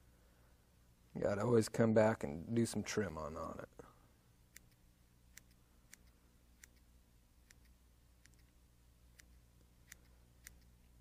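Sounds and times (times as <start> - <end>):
faint low hum: 0.0 - 11.0
scissors snipping: 4.5 - 10.8.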